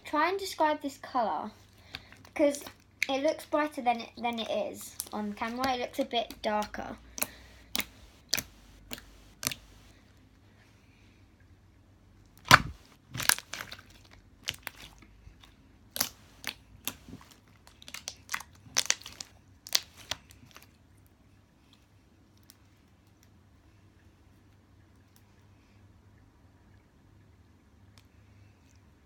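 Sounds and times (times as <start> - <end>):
slime clicking and popping: 5.0 - 9.9, 12.4 - 15.0, 15.9 - 20.3.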